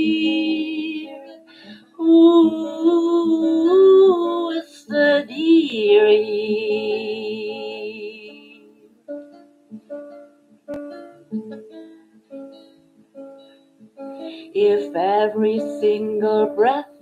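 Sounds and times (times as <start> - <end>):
woman singing with vibrato: 0.0 - 8.8, 14.4 - 17.0
acoustic guitar picking: 0.0 - 17.0.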